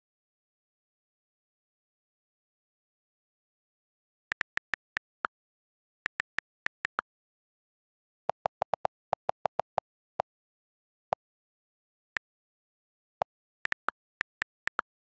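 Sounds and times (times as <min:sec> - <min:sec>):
on-screen keyboard clicks: 0:04.3 - 0:05.1, 0:06.1 - 0:07.0, 0:08.3 - 0:09.8, 0:13.2 - 0:14.9.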